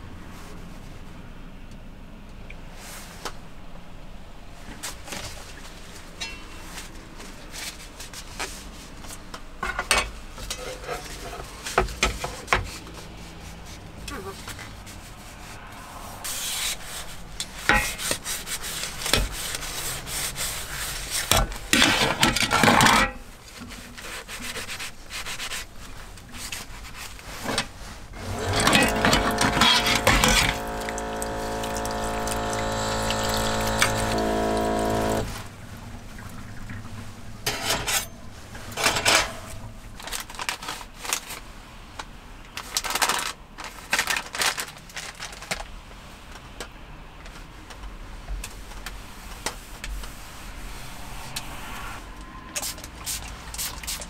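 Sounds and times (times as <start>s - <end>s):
faucet pump motor hum: 28.2s - 35.5s
running water: 28.2s - 37.3s
tissue packet rustling and clicking: 40.0s - 41.5s, 42.6s - 45.7s.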